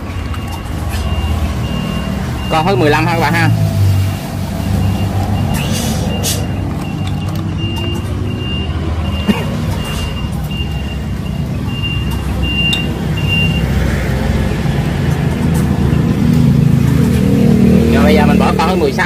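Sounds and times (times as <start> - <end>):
reversing alarm beeping: 0.0 - 13.8, 15.8 - 16.2.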